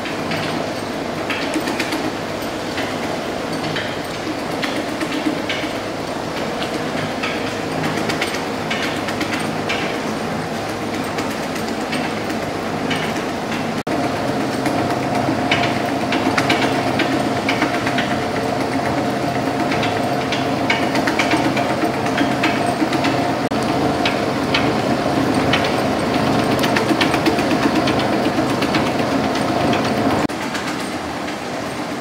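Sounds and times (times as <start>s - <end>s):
high steady machine whine: 0.0s - 32.0s.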